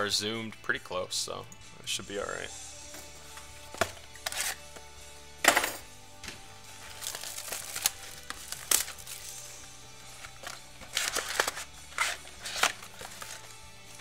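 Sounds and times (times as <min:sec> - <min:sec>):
wrapper crinkling and tearing: 0:04.2 - 0:04.6, 0:06.8 - 0:14.0.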